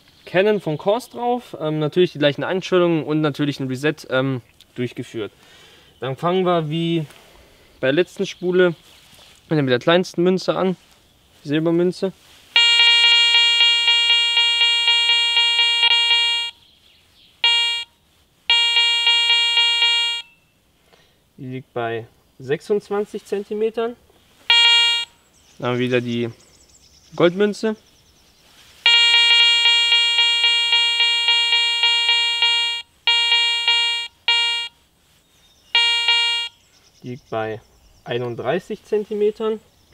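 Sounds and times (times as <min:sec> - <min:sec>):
metal detector pulsing beep: 0:12.6 - 0:16.6, 0:17.4 - 0:17.9, 0:18.5 - 0:20.4, 0:24.5 - 0:25.1, 0:28.9 - 0:34.8, 0:35.7 - 0:36.6.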